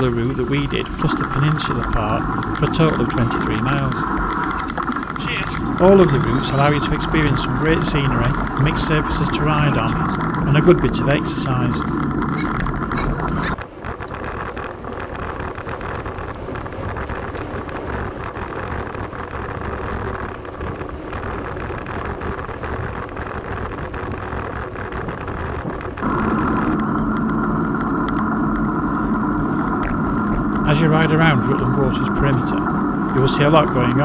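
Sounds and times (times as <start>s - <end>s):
steady hum of held tones: 0.0s - 14.2s, 26.0s - 34.0s
bicycle tyres on gravel: 0.0s - 34.0s
wind rumble on microphone: 0.0s - 34.0s.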